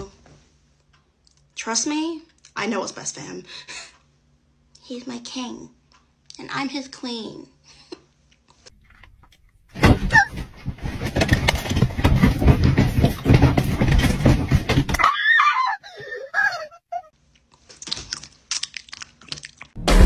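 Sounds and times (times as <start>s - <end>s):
woman screaming: 15.0s - 17.1s.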